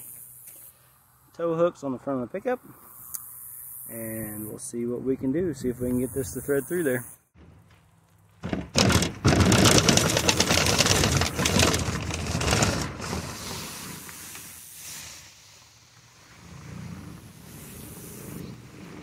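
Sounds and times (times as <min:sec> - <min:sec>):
tubing scraping through conduit: 0:08.6 - 0:15.1.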